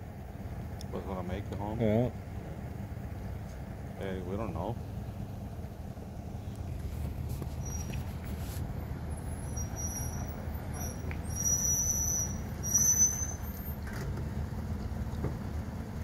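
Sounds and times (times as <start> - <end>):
engine running low rumble: 0.0 - 16.0
short high-pitched squeals: 7.5 - 8.6, 9.2 - 13.9.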